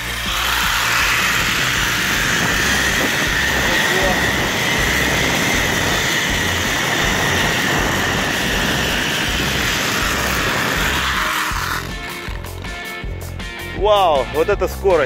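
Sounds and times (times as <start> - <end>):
zip-line trolley whine: 0.0 - 13.0
wind rushing: 0.7 - 12.4.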